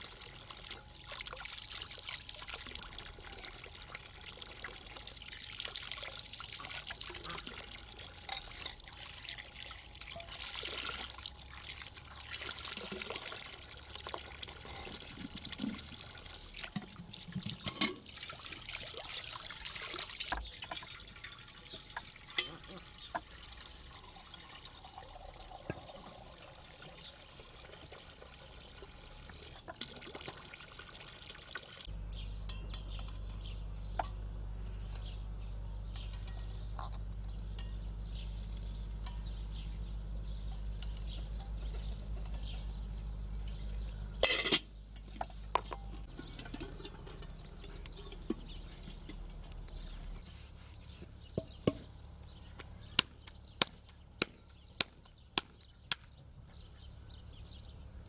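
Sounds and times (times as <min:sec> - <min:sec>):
hose water splashing into metal pot: 0:00.0 - 0:31.9, 0:36.0 - 0:50.1
low steady hum: 0:31.8 - 0:54.6.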